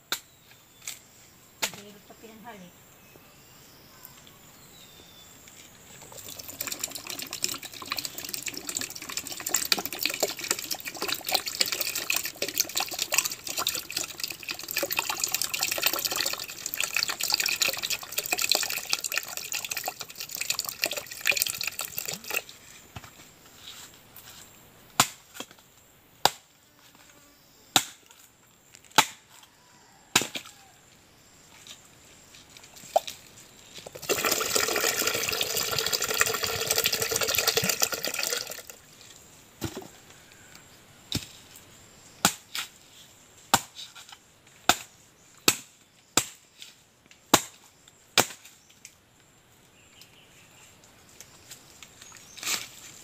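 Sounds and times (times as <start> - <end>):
water pouring into plastic pitcher: 5.9 - 22.5, 33.8 - 38.8
machete chopping coconut husk: 25.0 - 25.6, 26.2 - 26.5, 27.7 - 28.0, 28.8 - 29.4, 30.1 - 30.7, 42.2 - 42.8, 43.5 - 48.6.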